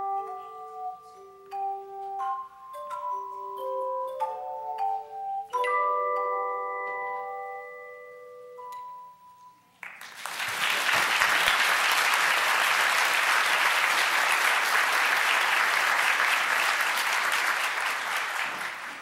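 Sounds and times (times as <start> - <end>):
audience applause: 9.8 - 19.0.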